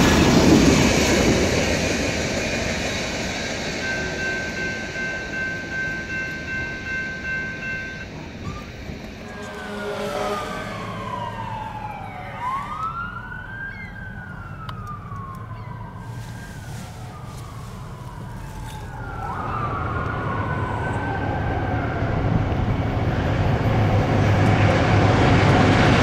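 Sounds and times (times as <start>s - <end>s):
railroad crossing bell dinging: 2.7s - 13.3s
emergency siren wailing: 3.5s - 23.6s.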